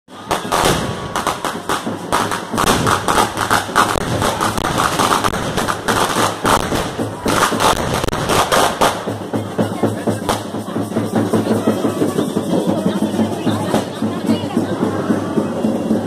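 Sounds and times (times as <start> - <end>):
firecrackers cracking: 0.1 - 10.8.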